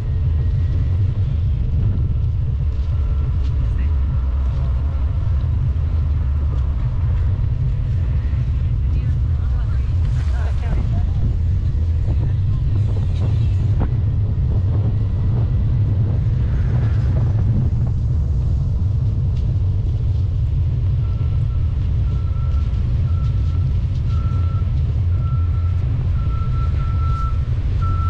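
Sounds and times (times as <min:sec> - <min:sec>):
wind rumble on microphone: 0:00.0 - 0:28.0
backup alarm beeping: 0:21.0 - 0:28.0.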